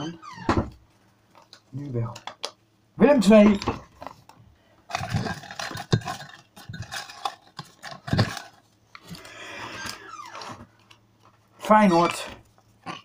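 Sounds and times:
handling knocks and clatters: 0:03.3 - 0:11.4.

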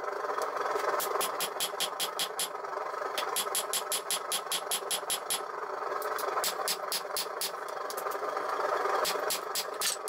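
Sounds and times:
hammer striking hot steel on anvil: 0:03.3 - 0:05.4.

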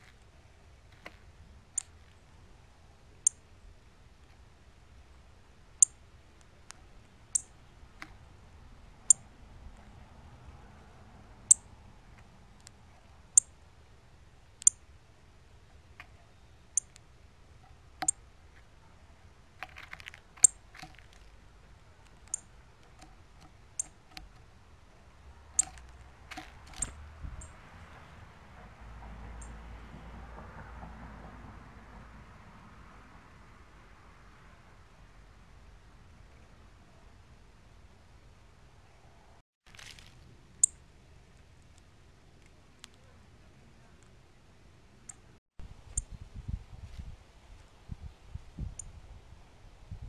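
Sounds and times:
soft bird clicks: 0:25.5 - 0:27.5.

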